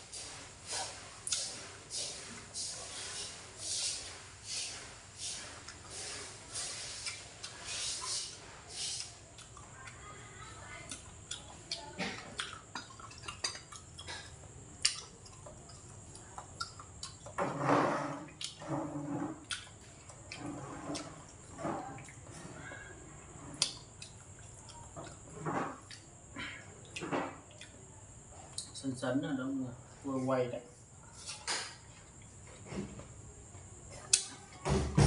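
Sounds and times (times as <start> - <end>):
wet chewing: 0.8 - 1.6, 5.4 - 17.4, 18.1 - 22.4, 23.4 - 26.1, 26.8 - 27.9.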